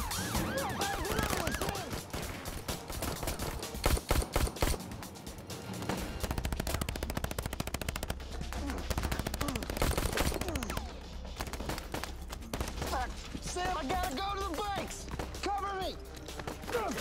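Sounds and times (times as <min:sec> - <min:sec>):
rapid gunfire: 0:00.0 - 0:05.0, 0:05.6 - 0:15.5
pistol shots: 0:00.9 - 0:04.8.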